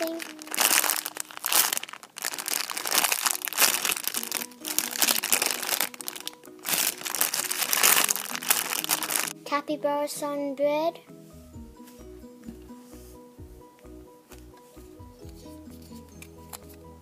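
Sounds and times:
plastic bags crinkling: 0:00.0 - 0:09.4
background music: 0:00.0 - 0:17.0.

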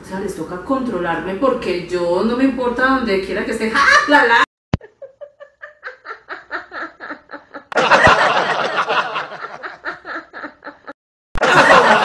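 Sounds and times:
person laughing heartily: 0:03.8 - 0:12.0.

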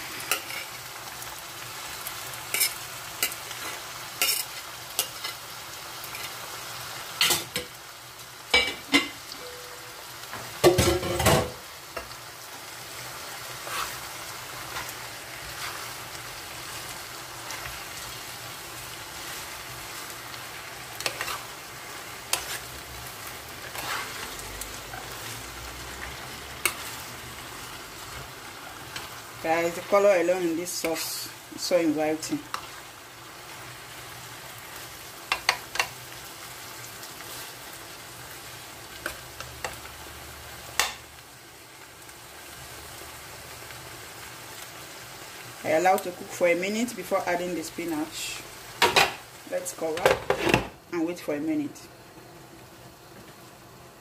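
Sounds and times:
vegetables sizzling in a pan: 0:00.0 - 0:54.0
spoon scraping and knocking pan: 0:21.0 - 0:21.6, 0:22.2 - 0:22.7, 0:35.3 - 0:36.0, 0:49.9 - 0:50.7.

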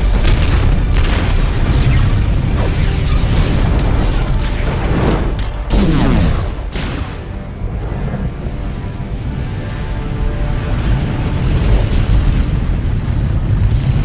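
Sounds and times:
loud rumbling explosion: 0:00.0 - 0:08.5
orchestral music: 0:02.0 - 0:13.3.

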